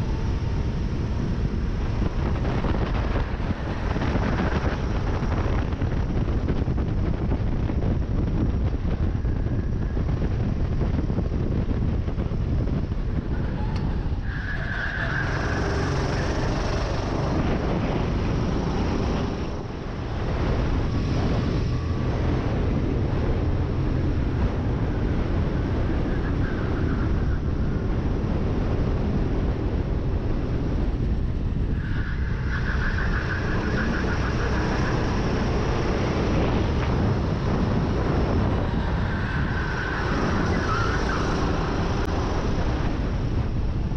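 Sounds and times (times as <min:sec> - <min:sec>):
wind on microphone: 0:00.0 - 0:43.9
kart engine running hard: 0:15.2 - 0:19.7.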